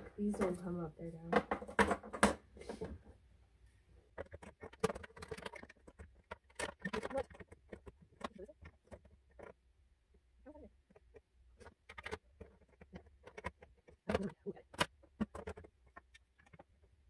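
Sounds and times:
hard plastic clicks and rattles: 4.1s - 9.6s, 10.8s - 17.0s.

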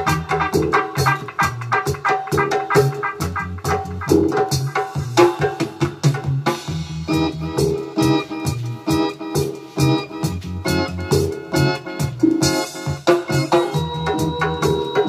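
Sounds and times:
reggae record with bass and drums: 0.0s - 15.0s
sustained keyboard chords: 0.0s - 15.0s.

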